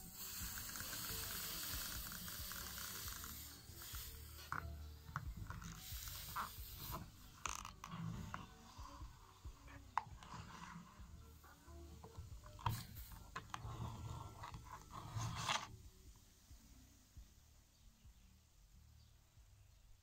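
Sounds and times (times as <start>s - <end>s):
cola fizzing hiss: 0.0s - 7.8s.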